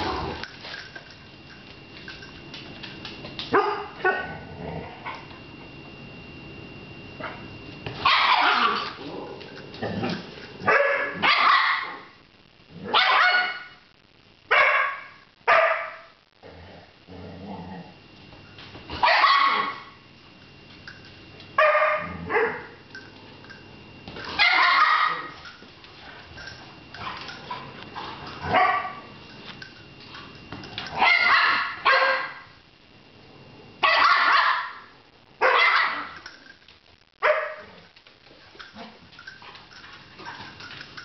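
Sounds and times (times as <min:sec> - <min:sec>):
dogs grumbling: 0:00.0 - 0:00.5, 0:04.2 - 0:05.3, 0:08.4 - 0:10.5, 0:16.4 - 0:18.0
dogs barking and yipping: 0:08.0 - 0:09.0, 0:10.6 - 0:12.0, 0:12.9 - 0:13.6, 0:18.9 - 0:19.9, 0:24.2 - 0:25.6, 0:26.3 - 0:29.1, 0:30.8 - 0:32.4, 0:33.8 - 0:34.8, 0:35.4 - 0:36.3.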